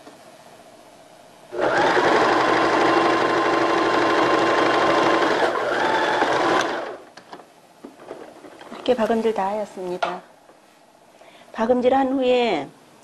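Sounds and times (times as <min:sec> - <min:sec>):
sewing machine stitching: 0:01.6 - 0:07.0.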